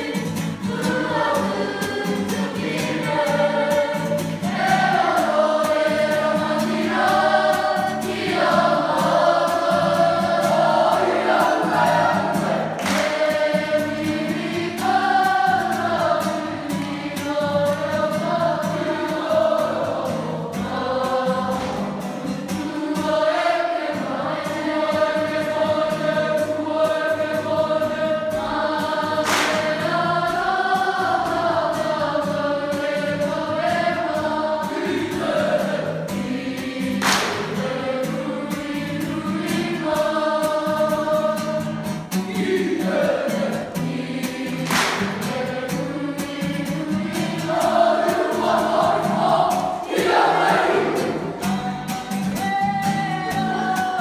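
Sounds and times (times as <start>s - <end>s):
children singing in unison: 0.0s - 54.0s.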